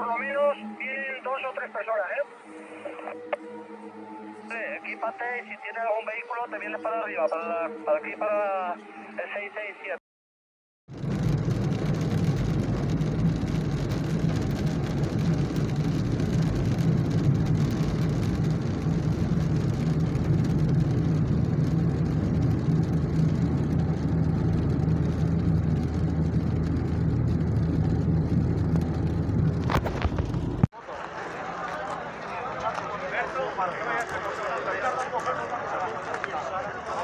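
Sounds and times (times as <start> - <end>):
car road and engine rumble: 10.9 - 30.7.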